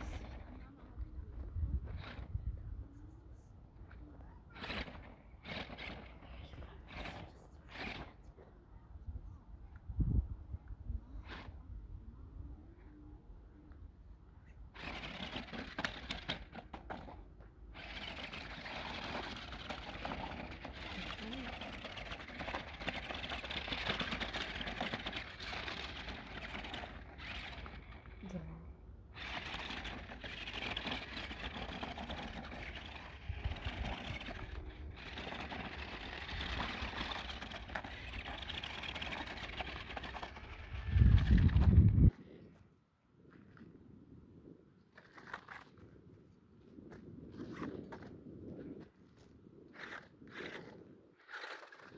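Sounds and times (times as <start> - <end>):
electric motors of toy car: 0.0 - 2.6, 3.9 - 8.4, 11.1 - 11.7, 14.7 - 42.1, 49.7 - 51.9
tyres churning gravel: 17.7 - 28.4, 29.2 - 41.6.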